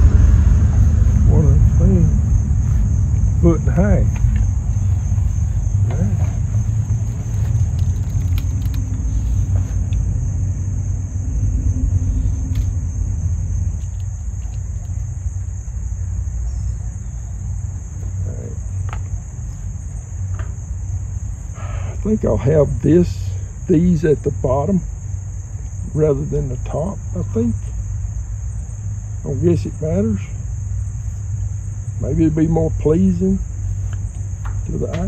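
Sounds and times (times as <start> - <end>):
low fluctuating rumble: 0.0 - 16.9
insects chorus: 0.0 - 35.0.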